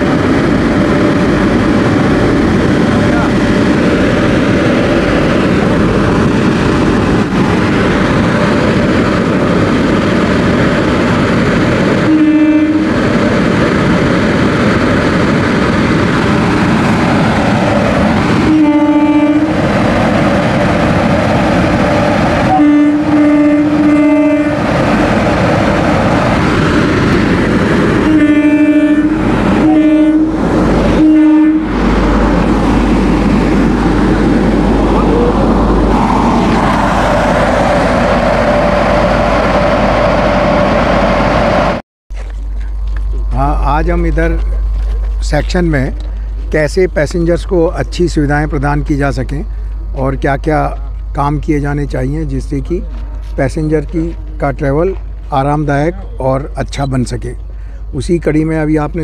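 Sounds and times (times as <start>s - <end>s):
deep train rumble: 0.0s - 59.0s
train horn blasts: 12.0s - 13.0s, 18.4s - 19.6s, 22.4s - 24.7s, 28.0s - 31.8s.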